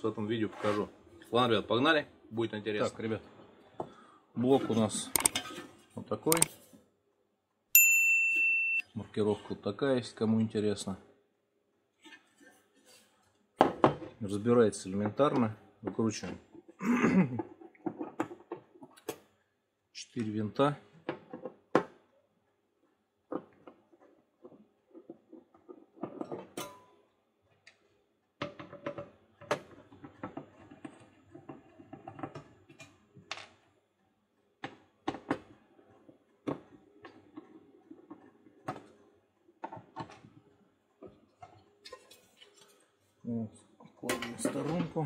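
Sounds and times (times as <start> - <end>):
screwdriver clicks and scrapes: 5.2 - 5.6, 6.3 - 6.6.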